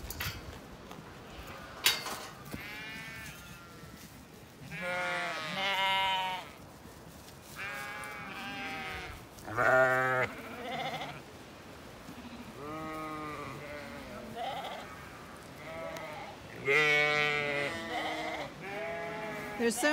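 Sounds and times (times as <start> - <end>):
sheep bleating: 2.6 - 3.8, 4.7 - 6.6, 7.6 - 11.2, 12.1 - 19.9.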